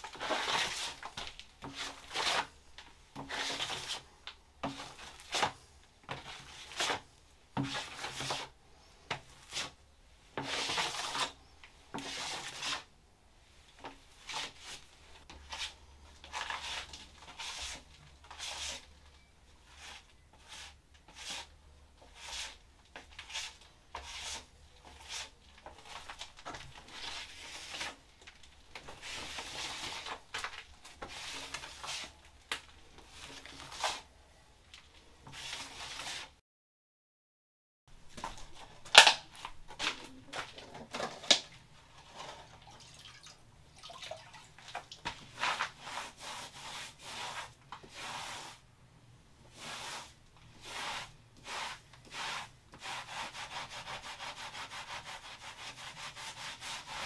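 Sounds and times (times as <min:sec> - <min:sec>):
hand tool scraping a wall: 0:00.0 - 0:07.0, 0:07.6 - 0:09.8, 0:10.4 - 0:12.9, 0:19.6 - 0:28.0, 0:28.8 - 0:32.2, 0:45.1 - 0:48.6, 0:49.5 - 0:57.0.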